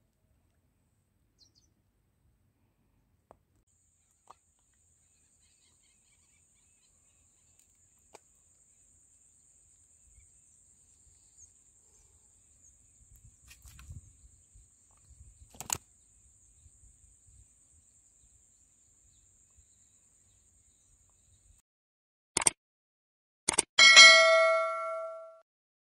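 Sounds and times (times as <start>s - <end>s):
bird chirps: 1.4s - 1.7s.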